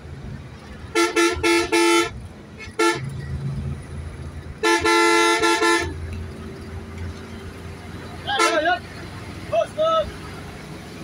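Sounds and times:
engine and tyre rumble: 0:00.0 - 0:11.0
vehicle horn honking: 0:00.9 - 0:03.1, 0:04.6 - 0:06.0, 0:08.3 - 0:08.8.

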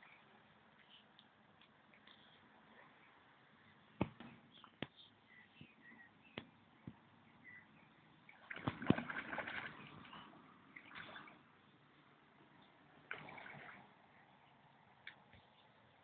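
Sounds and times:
fish splashing at the surface: 0:08.3 - 0:10.2, 0:13.1 - 0:14.0.

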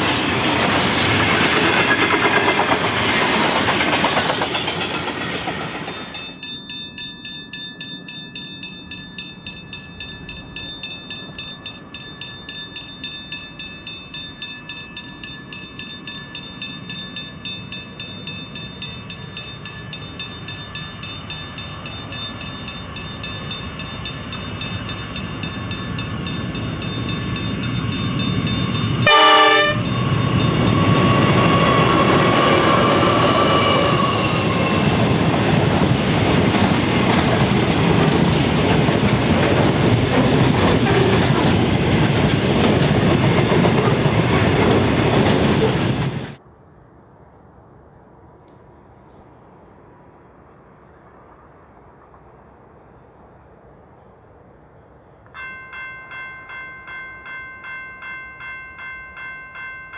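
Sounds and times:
locomotive engine and wheel noise: 0:00.0 - 0:59.9
locomotive high whine: 0:00.0 - 0:59.9
train horn blast: 0:29.0 - 0:30.0.

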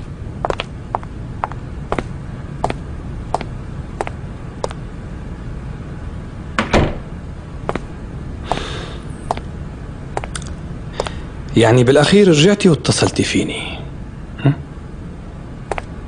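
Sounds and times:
footsteps on hard floor: 0:00.4 - 0:02.8
wooden door shutting: 0:06.6 - 0:07.0.

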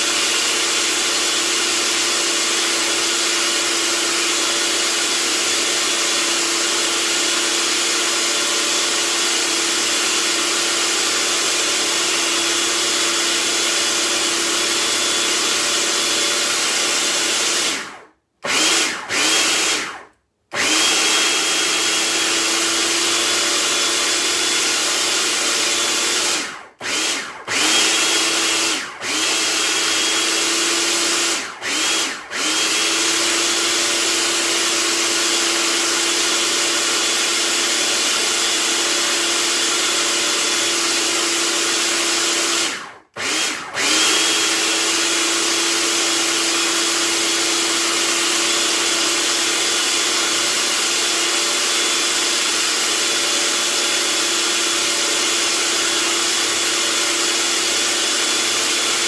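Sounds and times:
food processor motor grinding: 0:00.0 - 0:59.0.

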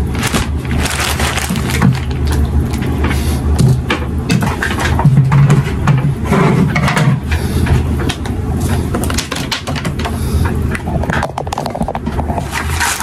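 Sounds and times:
low rumble: 0:00.0 - 0:03.7, 0:10.4 - 0:12.9.

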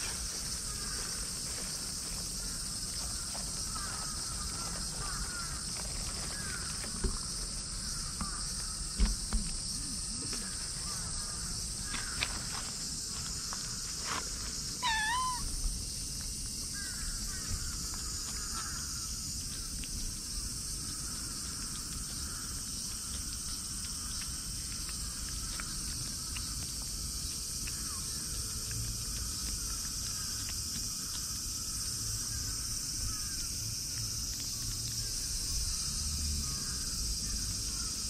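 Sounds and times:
cat meowing: 0:14.8 - 0:15.5.

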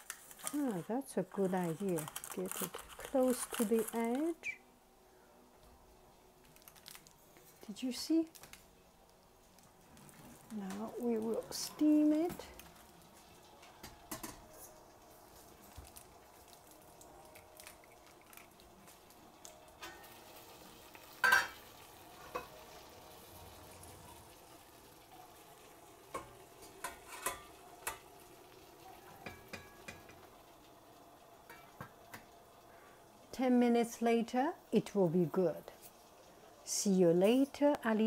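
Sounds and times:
water heating hiss: 0:00.0 - 0:38.0
metal pot and lid clinks: 0:21.2 - 0:21.6.

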